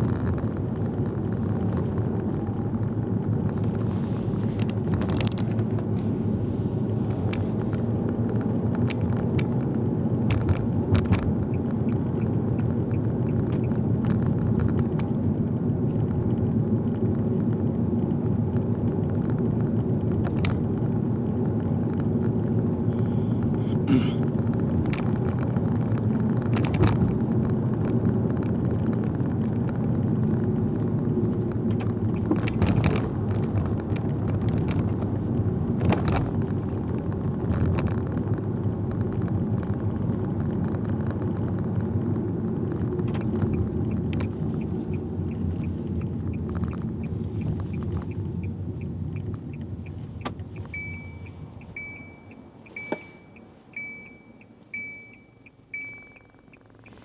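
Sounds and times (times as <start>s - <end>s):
car engine and tyre rumble: 0.0s - 57.0s
short high electronic beep: 50.8s - 56.5s.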